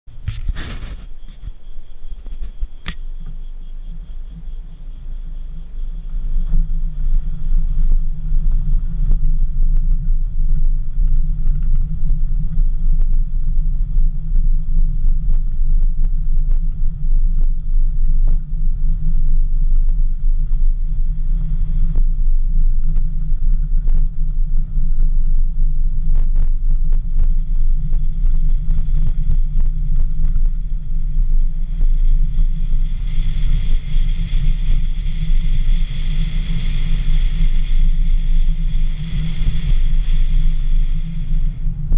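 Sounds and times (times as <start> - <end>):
wind rumble: 0.0 - 41.9
high insect buzz: 0.1 - 12.4
stones clicking under tyres: 0.2 - 3.4.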